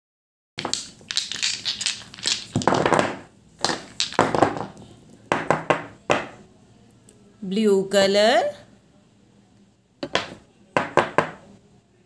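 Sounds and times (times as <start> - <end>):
plastic jars clattering together: 0.6 - 4.8.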